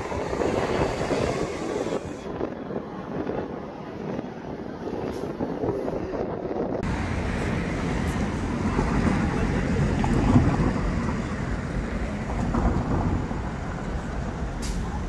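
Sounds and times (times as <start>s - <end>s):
wind buffeting microphone: 0.0s - 15.0s
cars passing: 6.8s - 15.0s.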